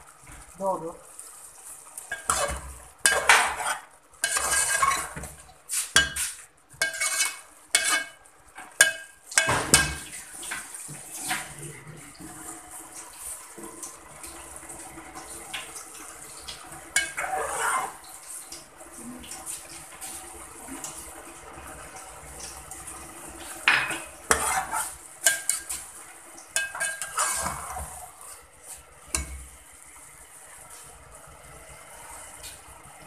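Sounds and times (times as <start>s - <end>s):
metal spoon scraping a pot: 2.1s - 8.2s, 17.0s - 18.0s, 24.3s - 25.8s, 26.6s - 28.0s.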